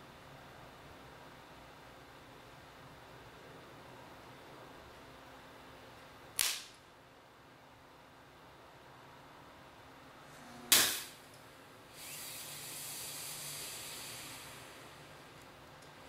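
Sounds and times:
sharp electronic component pop: 10.7s - 11.2s
hiss of venting smoke: 12.0s - 15.0s.

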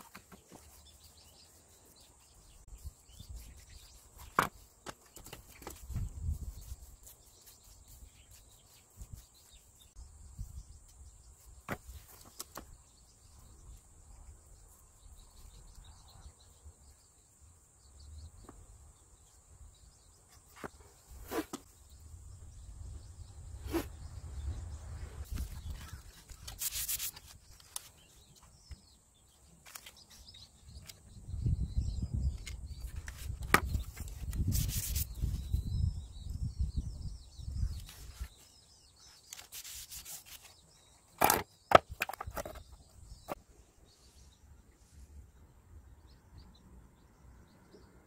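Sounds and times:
paintbrush rubbing on board: 5.7s - 9.7s, 26.6s - 27.4s, 34.4s - 35.3s, 39.4s - 40.6s.

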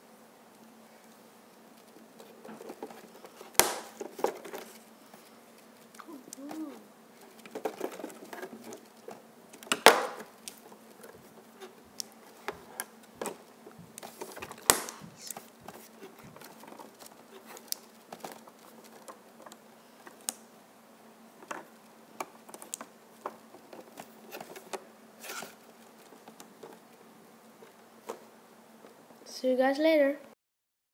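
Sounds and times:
faint steady hum: 0.0s - 30.4s
plastic figures clicking and tapping: 21.4s - 24.8s.

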